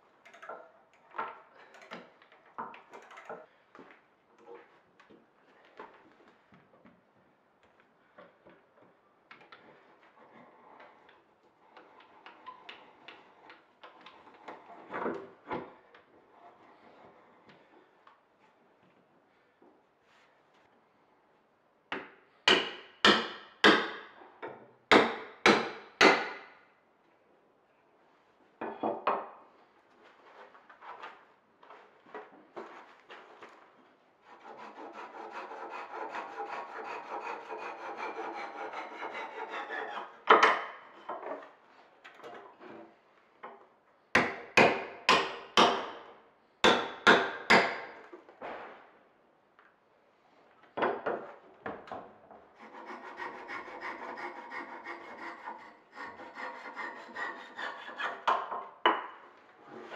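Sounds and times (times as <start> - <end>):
hammer knocking wooden dowel: 22.0 - 24.0, 24.9 - 26.4, 44.2 - 46.0, 46.6 - 47.9
handsaw cutting wood: 34.3 - 40.2, 52.6 - 58.3.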